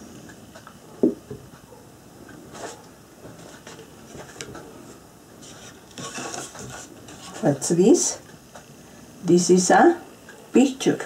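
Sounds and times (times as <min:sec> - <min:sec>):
soft rustling: 0:02.5 - 0:08.0.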